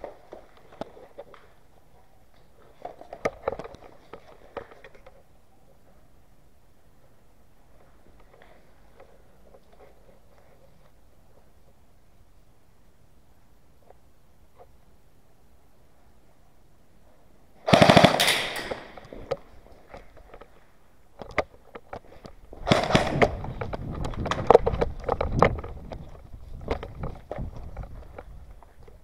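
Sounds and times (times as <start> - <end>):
airsoft gun full-auto burst: 17.6 - 19.0, 22.6 - 23.4
sharp clicks and knocks: 17.9 - 20.6, 21.2 - 29.0.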